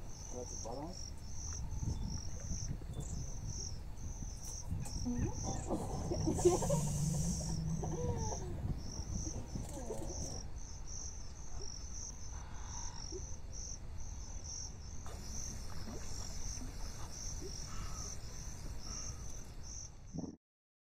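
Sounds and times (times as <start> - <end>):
low steady rumble: 0.0 - 14.2
insects chirping: 0.0 - 20.2.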